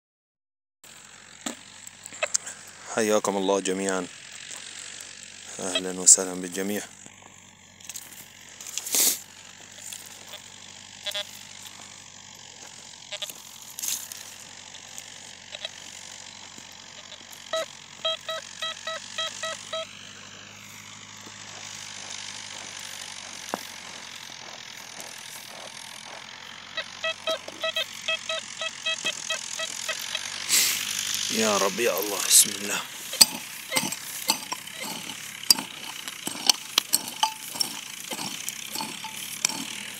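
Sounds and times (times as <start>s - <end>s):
metal detector beeps: 5.6s - 6.1s, 9.7s - 11.8s, 13.1s - 14.1s, 15.5s - 16.0s, 16.9s - 19.9s, 26.7s - 30.3s, 31.3s - 39.8s.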